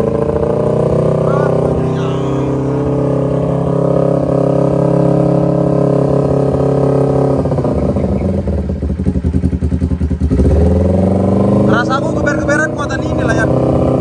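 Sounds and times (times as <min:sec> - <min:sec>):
motorcycle engine revving and idling: 0:00.0 - 0:14.0.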